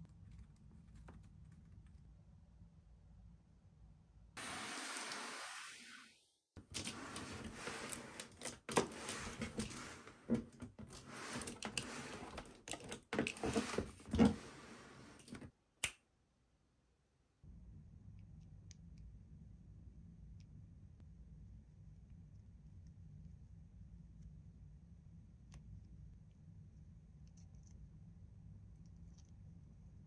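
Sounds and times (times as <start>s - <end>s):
rustling handling noise: 6.6s - 15.5s.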